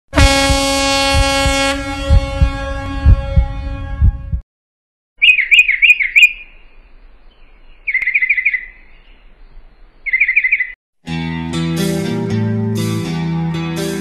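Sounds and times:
small bird chirping: 0:05.2 - 0:10.8.

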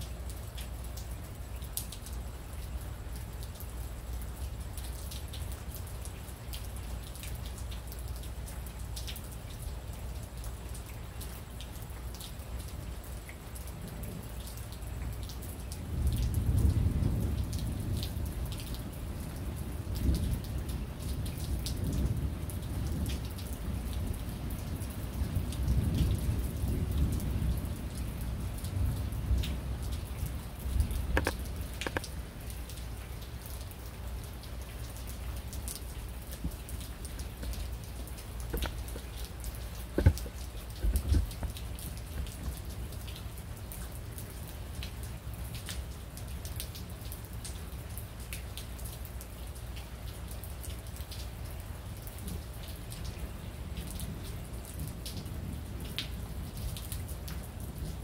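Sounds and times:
rain falling: 0:00.0 - 0:58.0
low rolling thunder: 0:15.8 - 0:31.7
drops tapping on a surface: 0:39.9 - 0:41.5.

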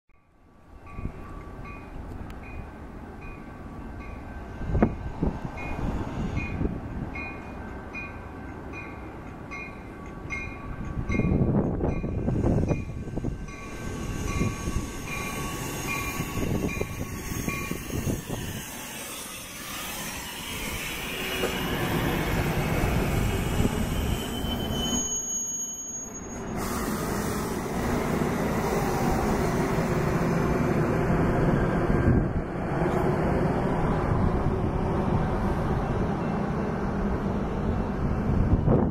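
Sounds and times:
diesel train rumbling past: 0:00.2 - 0:38.9
high wheel squeal: 0:13.1 - 0:27.9.

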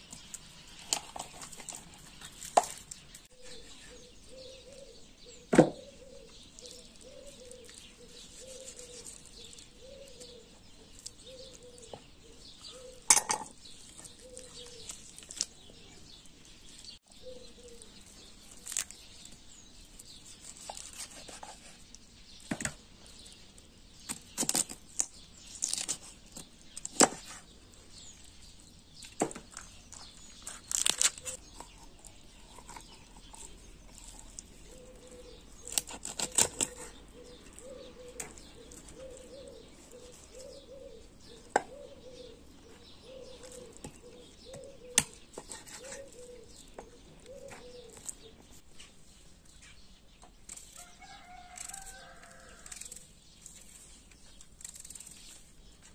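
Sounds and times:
knife cutting chicken: 0:32.4 - 0:39.2.

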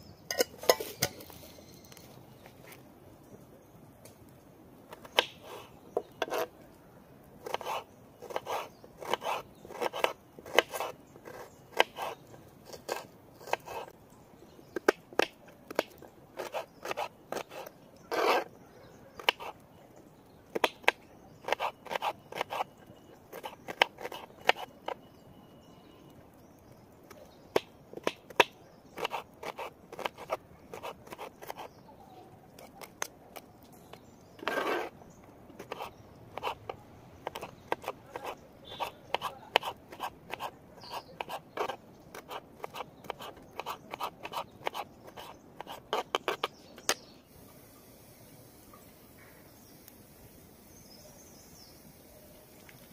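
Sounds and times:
knife crunching through onion: 0:07.4 - 0:13.9, 0:15.2 - 0:18.5, 0:20.6 - 0:22.7, 0:29.0 - 0:31.7, 0:35.6 - 0:36.6, 0:37.2 - 0:46.9.

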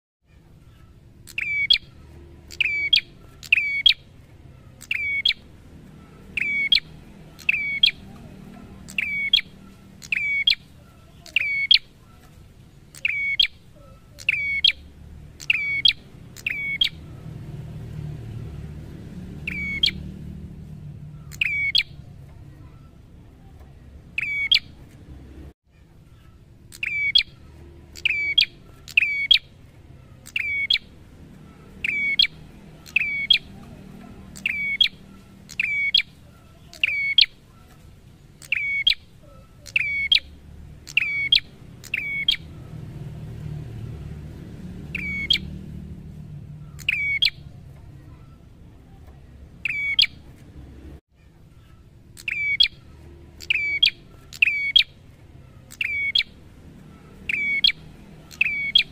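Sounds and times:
bird calling sharp notes: 0:00.6 - 0:17.3, 0:19.4 - 0:20.2, 0:20.9 - 0:22.1, 0:24.1 - 0:24.8, 0:26.1 - 0:42.7, 0:44.9 - 0:45.6, 0:46.4 - 0:48.5, 0:49.6 - 0:50.3, 0:51.5 - 0:58.9.

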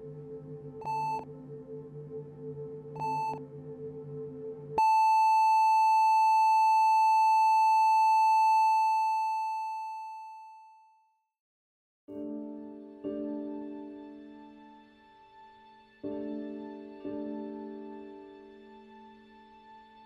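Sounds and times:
short electronic beep: 0:00.9 - 0:01.2, 0:03.0 - 0:03.4, 0:04.8 - 0:10.8
loud steady electronic tone: 0:03.0 - 0:03.4, 0:04.8 - 0:10.4
soft piano music: 0:12.1 - 0:20.0.

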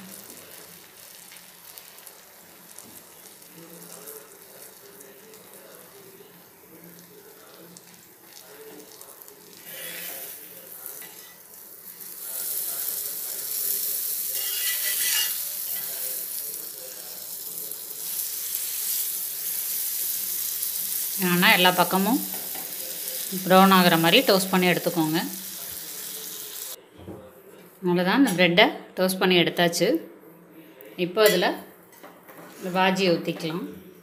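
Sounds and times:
butter sizzling on hot pan: 0:00.0 - 0:26.8.

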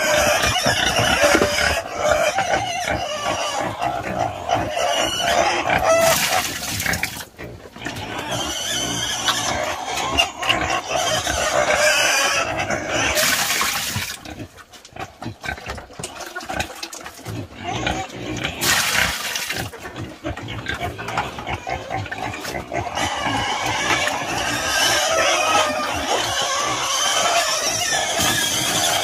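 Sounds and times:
pig slurping and chomping: 0:00.0 - 0:29.0
feed splashing into basin: 0:06.0 - 0:07.3, 0:13.2 - 0:14.3, 0:18.5 - 0:19.7.

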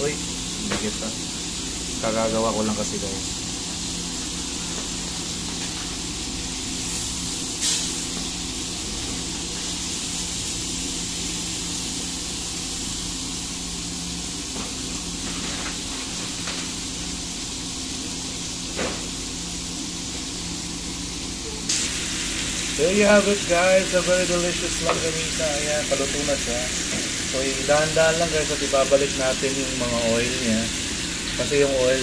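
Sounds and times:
sausages sizzling in oil: 0:00.0 - 0:32.0.

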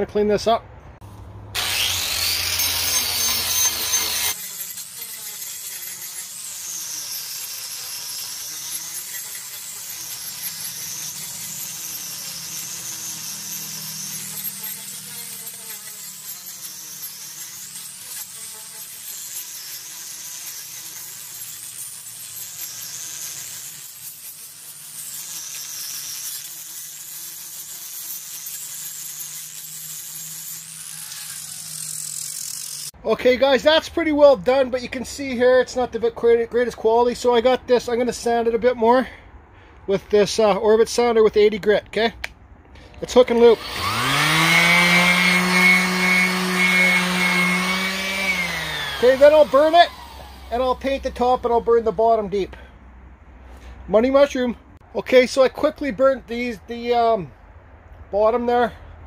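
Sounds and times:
angle grinder grinding wood: 0:01.6 - 0:33.0, 0:42.8 - 0:52.3.

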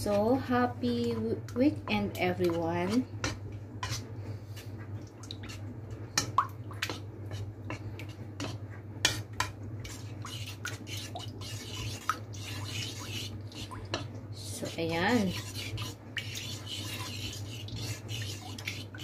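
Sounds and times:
spoon stirring thick liquid: 0:00.0 - 0:19.0
steady low hum: 0:00.0 - 0:19.0
wet dripping: 0:05.0 - 0:05.6.

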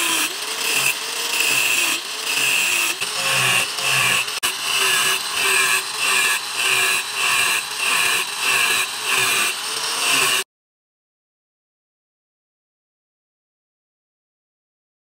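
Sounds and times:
angle grinder cutting steel: 0:00.0 - 0:10.5.

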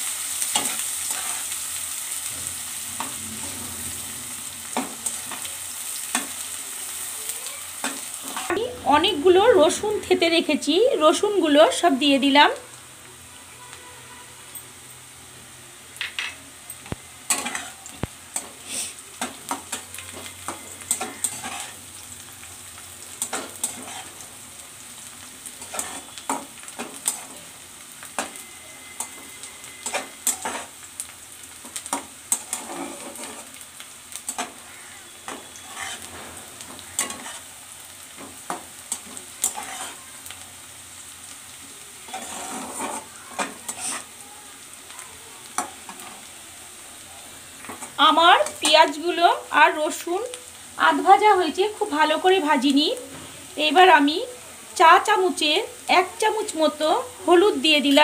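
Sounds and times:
onions and garlic sizzling in oil: 0:00.0 - 0:58.0
metal spatula scraping a pan: 0:00.4 - 0:06.5, 0:07.8 - 0:09.7, 0:16.2 - 0:22.0, 0:23.2 - 0:24.2, 0:25.5 - 0:27.4, 0:28.1 - 0:30.8, 0:31.6 - 0:37.5, 0:38.1 - 0:40.1, 0:42.0 - 0:44.2.

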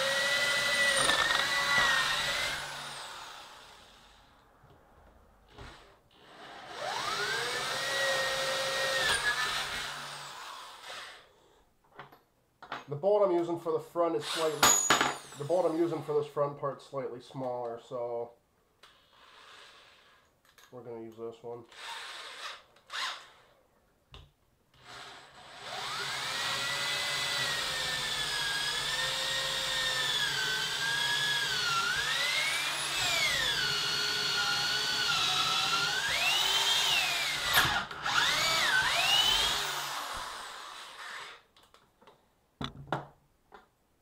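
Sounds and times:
electric drill boring into wood: 0:00.0 - 0:04.2, 0:05.5 - 0:11.3, 0:14.2 - 0:15.6, 0:19.1 - 0:20.2, 0:21.7 - 0:23.5, 0:24.8 - 0:41.5.

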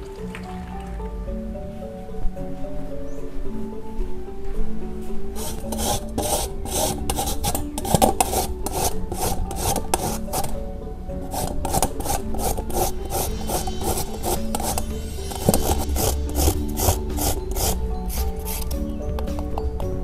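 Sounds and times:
carrot being grated: 0:05.4 - 0:10.6, 0:11.2 - 0:19.6.

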